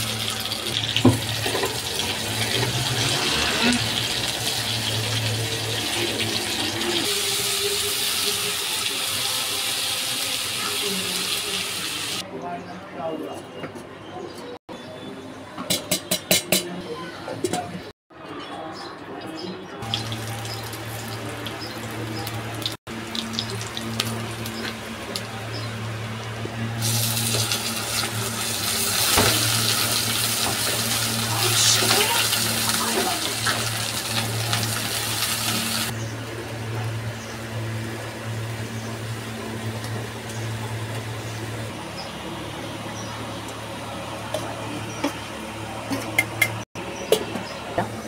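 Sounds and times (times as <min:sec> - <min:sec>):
spices frying in hot oil: 0:00.0 - 0:12.2, 0:19.8 - 0:26.1, 0:26.7 - 0:36.0, 0:36.9 - 0:41.8.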